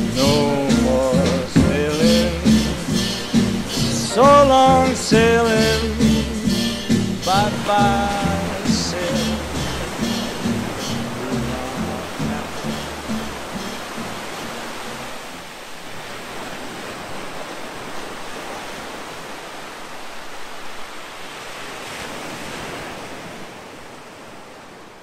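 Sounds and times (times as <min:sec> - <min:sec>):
song: 0:00.0 - 0:15.1
ocean surf rushing: 0:00.0 - 0:25.0.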